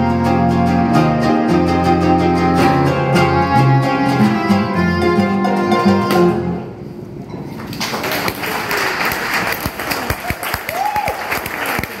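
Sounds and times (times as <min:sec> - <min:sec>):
audience clapping: 0:07.6 - 0:12.0
person whooping: 0:10.2 - 0:11.3.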